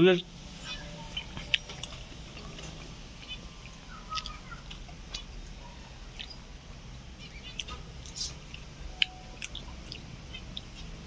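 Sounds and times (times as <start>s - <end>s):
chewing and mouth clicks: 0.6s - 6.4s, 7.2s - 11.0s
budgerigars chirping: 3.2s - 4.8s, 7.2s - 8.4s.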